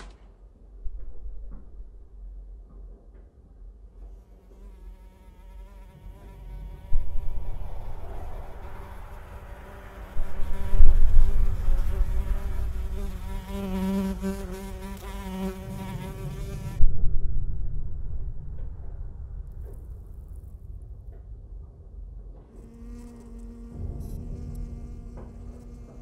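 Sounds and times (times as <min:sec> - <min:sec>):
deep low rumble: 0:00.0 - 0:04.0, 0:15.7 - 0:26.0
fly buzzing: 0:04.1 - 0:16.8, 0:22.5 - 0:26.0.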